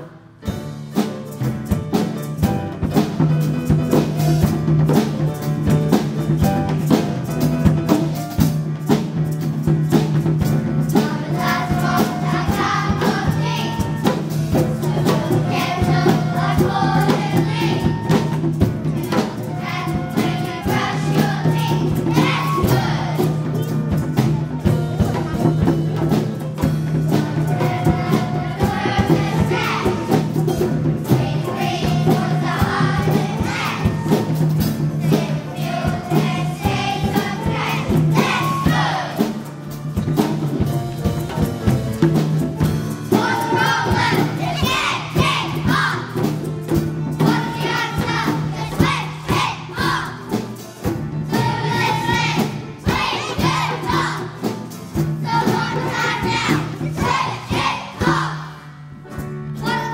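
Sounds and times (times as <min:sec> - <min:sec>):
children singing in unison: 0:10.9 - 0:23.5, 0:27.1 - 0:39.4, 0:43.1 - 0:46.4, 0:47.2 - 0:50.4, 0:51.2 - 0:54.5, 0:55.2 - 0:58.7.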